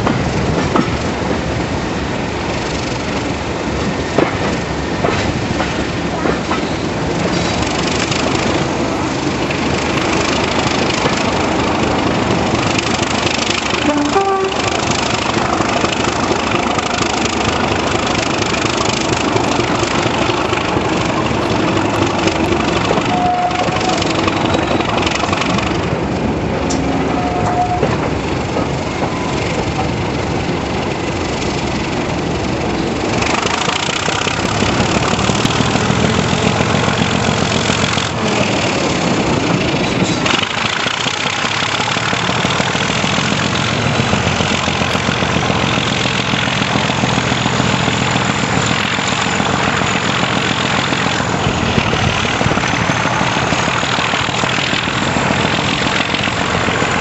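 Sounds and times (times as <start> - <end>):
diesel locomotive engine working hard: 0.0 - 57.0
rail noise: 0.0 - 57.0
wind through open window: 50.1 - 57.0.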